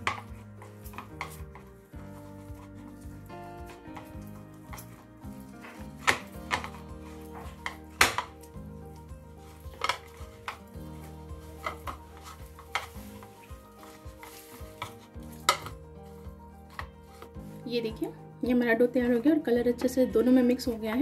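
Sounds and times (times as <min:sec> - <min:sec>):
fingers kneading soft dough: 0:00.0 - 0:18.2
soft background music: 0:00.0 - 0:21.0.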